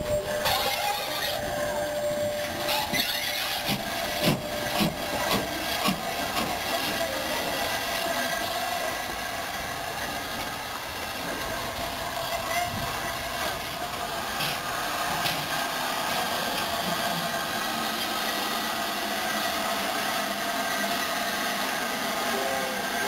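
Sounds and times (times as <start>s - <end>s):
steam locomotive running noise: 0.0s - 23.0s.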